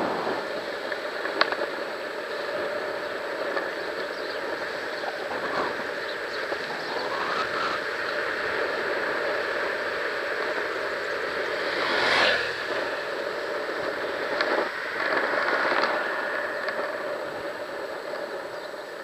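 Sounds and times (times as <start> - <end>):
longboard wheels on asphalt: 0.0 - 19.0
motorcycle passing: 4.9 - 17.9.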